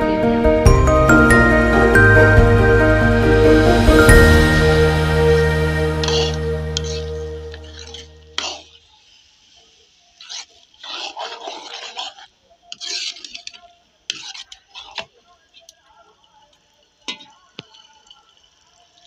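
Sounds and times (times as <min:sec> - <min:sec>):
background music: 0:00.0 - 0:08.5
metal ladle scraping a pot: 0:03.9 - 0:08.9, 0:10.1 - 0:15.2.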